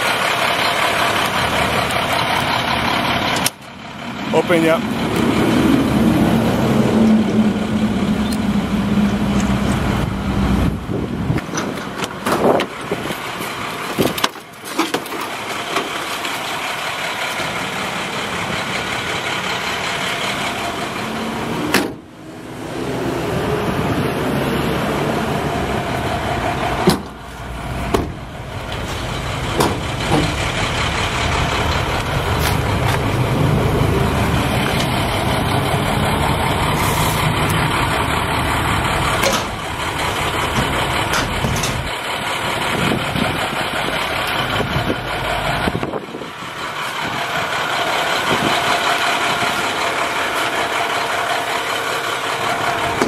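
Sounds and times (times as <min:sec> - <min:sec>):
engine running steadily: 0:00.0 - 0:53.0
sharp knocks: 0:27.9 - 0:28.2, 0:29.6 - 0:30.4.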